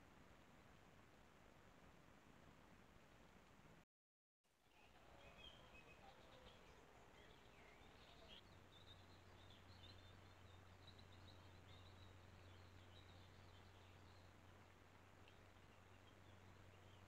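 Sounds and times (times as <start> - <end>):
faint bird chirps: 4.7 - 14.3.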